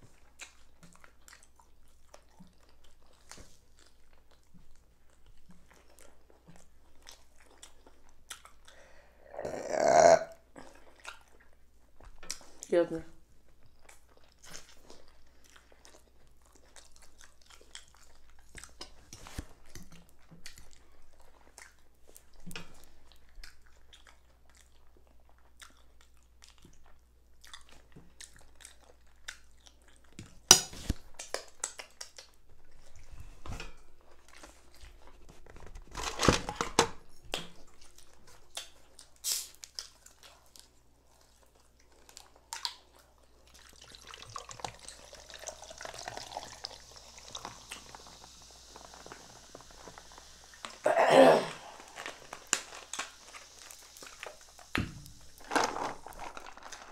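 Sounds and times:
chewing and mouth sounds: 0.0s - 9.8s, 10.4s - 12.7s, 13.3s - 33.3s, 37.2s - 50.8s, 51.6s - 55.4s.

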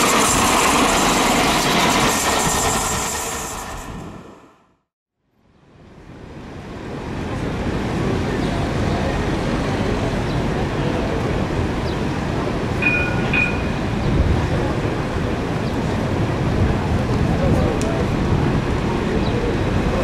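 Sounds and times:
tram rumbling on rails: 0.0s - 4.6s, 6.0s - 20.0s
two-note ringing signal: 12.8s - 13.8s.

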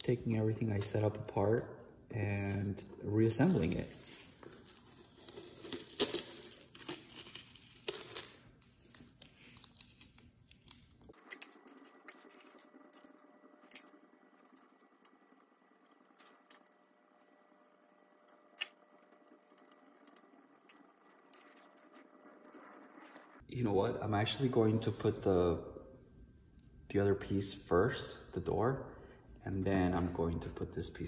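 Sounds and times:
tape ripping off glass: 4.5s - 9.3s.

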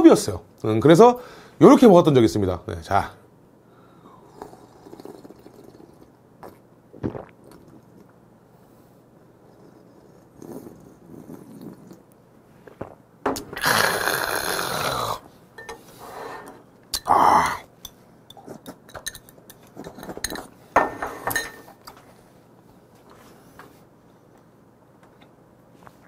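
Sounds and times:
person slurping: 4.2s - 8.1s, 9.5s - 12.0s, 13.6s - 15.3s
mouth and eating noises: 4.3s - 8.2s, 9.4s - 13.0s, 18.3s - 20.2s.

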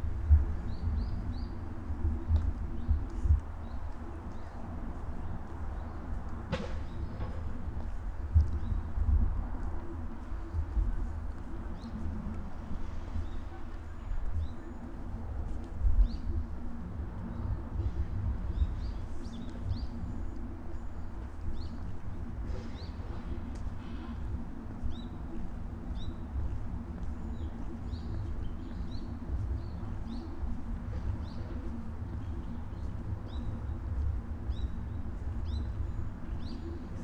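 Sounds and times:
steady low rumble: 0.0s - 37.0s
brief thump: 6.5s - 7.5s.

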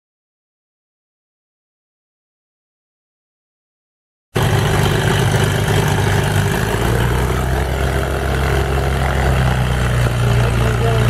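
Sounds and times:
piston aircraft engine idling: 4.4s - 11.0s.

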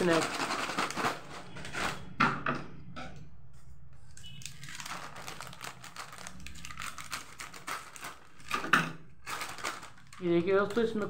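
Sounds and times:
plastic packet crinkling: 0.0s - 2.1s, 4.4s - 8.6s, 9.2s - 11.0s.

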